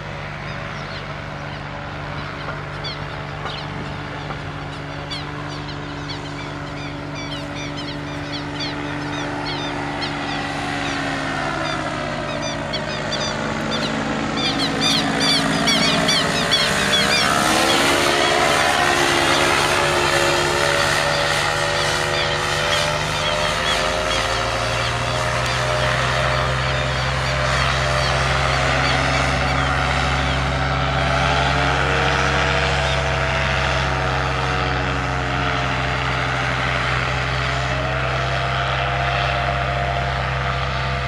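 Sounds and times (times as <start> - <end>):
propeller engine drone overhead: 0.0 - 41.0.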